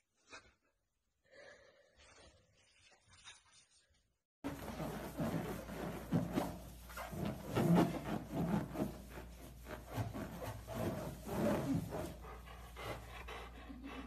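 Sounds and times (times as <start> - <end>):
dog rubbing rubber balloon: 4.5 - 13.1.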